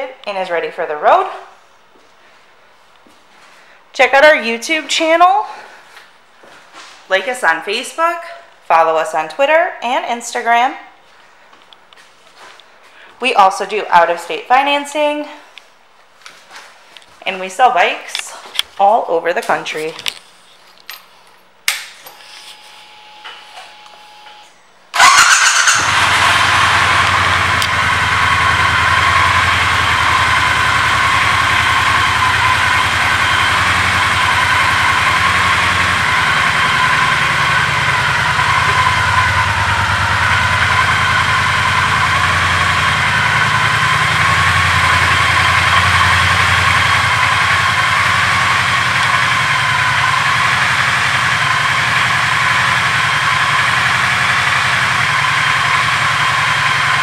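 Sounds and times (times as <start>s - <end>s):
motorcycle engine starting and idling: 24.3s - 57.0s.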